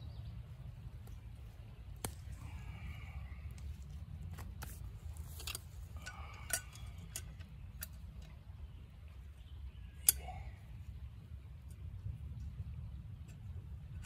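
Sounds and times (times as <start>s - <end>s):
leafy plants rustling: 0.4s - 7.2s.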